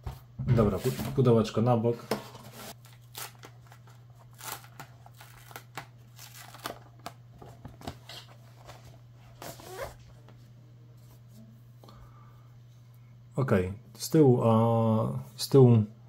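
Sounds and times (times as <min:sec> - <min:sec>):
plastic wrap crinkling: 0:02.7 - 0:08.3.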